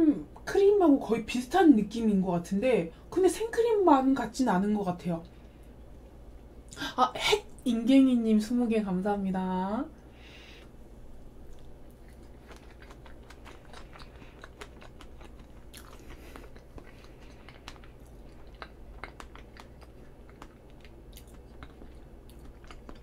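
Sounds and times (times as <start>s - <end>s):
chewing soft cake: 10.0s - 23.0s.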